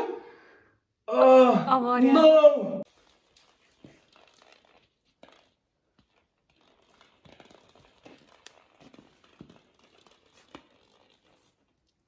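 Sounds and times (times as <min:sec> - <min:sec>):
plastic toy ball rustling: 0:02.9 - 0:12.0.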